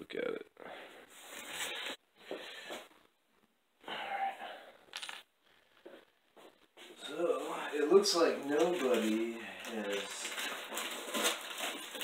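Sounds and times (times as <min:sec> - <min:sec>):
rustling and scraping: 0:01.0 - 0:03.5, 0:04.9 - 0:12.0.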